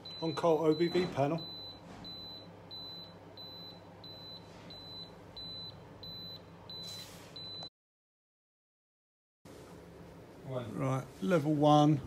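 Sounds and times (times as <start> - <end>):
high-pitched alarm beeping: 0.0 - 7.7.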